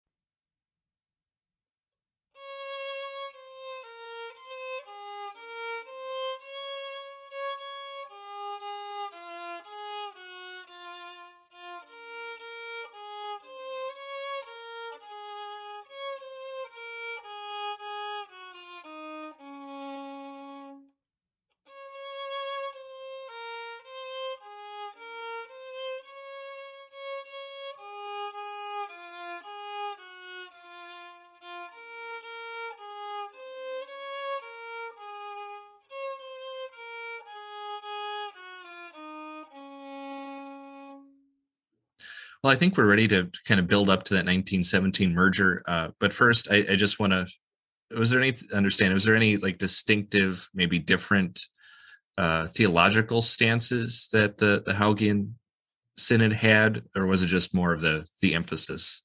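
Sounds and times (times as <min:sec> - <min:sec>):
solo violin melody: 0:02.4 - 0:20.9, 0:21.6 - 0:41.3.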